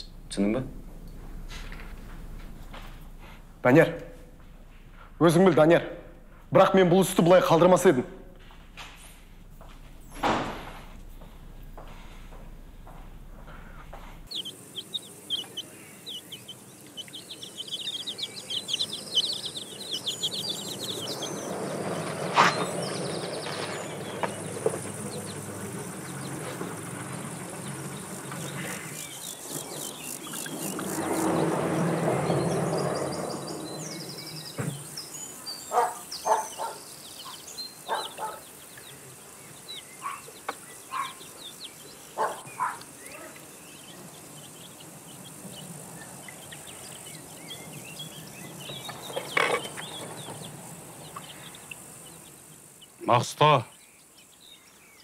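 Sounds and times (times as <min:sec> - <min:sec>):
birds chirping: 0:00.0 - 0:55.0
faint high insect hum: 0:00.0 - 0:55.0
rushes of noise: 0:19.0 - 0:34.6.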